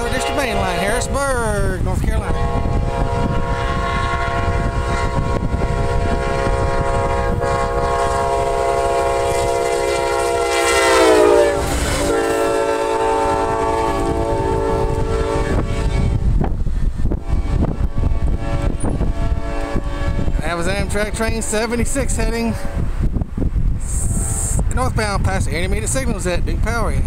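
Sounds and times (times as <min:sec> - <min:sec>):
train horn blast: 0:00.0 - 0:01.3, 0:02.2 - 0:16.3, 0:17.1 - 0:21.7
train rumble: 0:00.0 - 0:27.0.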